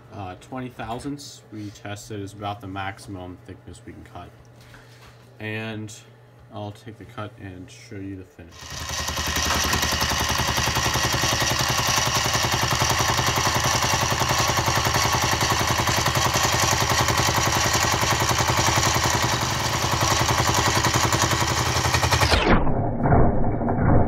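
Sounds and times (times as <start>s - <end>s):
milling machine cutter chatter: 8.5s - 22.2s.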